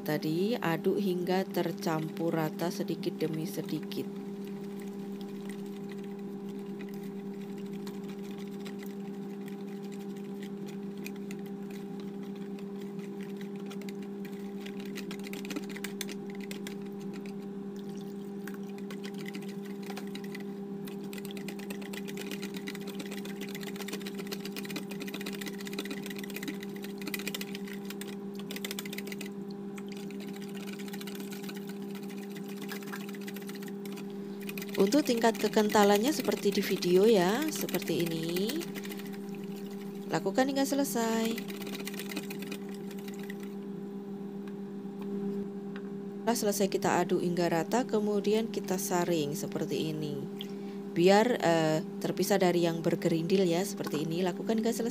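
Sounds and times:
low electric hum: 0.0 - 54.9
wire whisk stirring batter: 4.4 - 17.4, 18.5 - 43.5.

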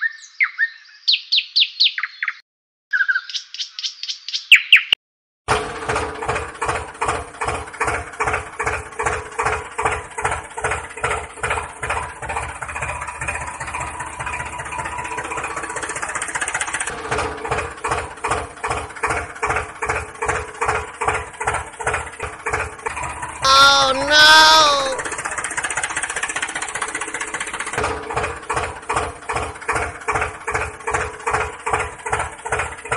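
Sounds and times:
tractor engine thudding: 5.5 - 23.4, 26.8 - 32.9.

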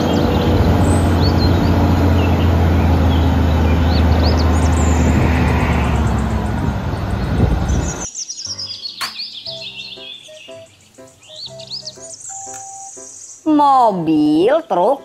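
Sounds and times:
truck diesel engine running: 0.0 - 8.0
birds chirping faintly: 0.0 - 15.0.

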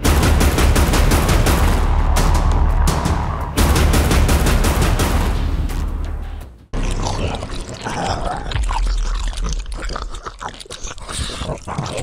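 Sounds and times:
low rumble: 0.4 - 6.4
wet chewing and crunching: 6.8 - 12.0.

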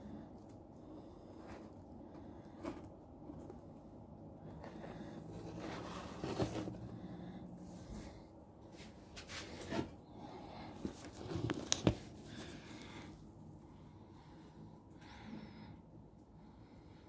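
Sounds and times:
low room hum: 0.0 - 17.0
soft handling knocks and rustles: 10.7 - 12.8.

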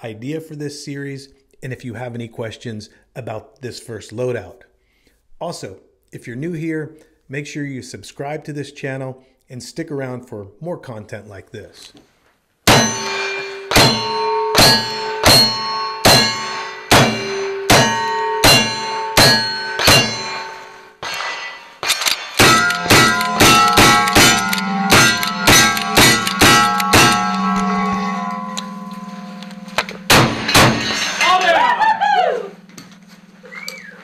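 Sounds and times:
steel target ringing: 12.7 - 33.4
lever-action rifle shots: 21.8 - 27.4.

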